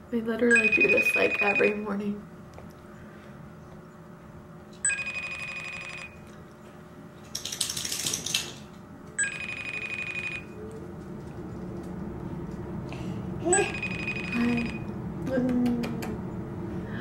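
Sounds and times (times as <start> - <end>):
phone call trilling rings: 0.5 - 1.9, 4.8 - 6.3, 9.2 - 10.6, 13.5 - 14.9.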